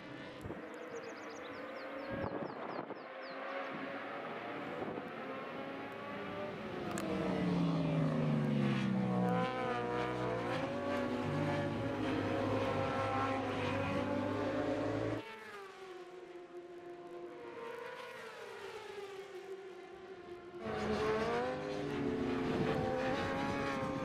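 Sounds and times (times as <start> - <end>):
racing motorcycle engines revving: 0.0 - 15.2, 20.6 - 24.0.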